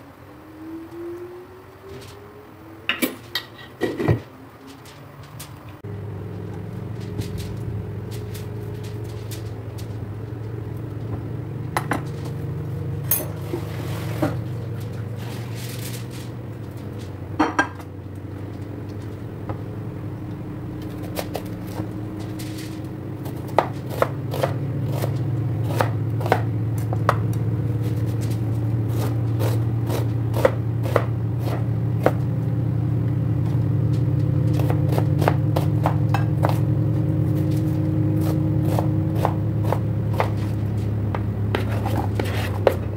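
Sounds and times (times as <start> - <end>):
steady low hum: 4.2 - 42.9
knife chopping on plastic board: 23.3 - 26.5, 28.9 - 32.2, 34.6 - 36.7, 38.2 - 40.6.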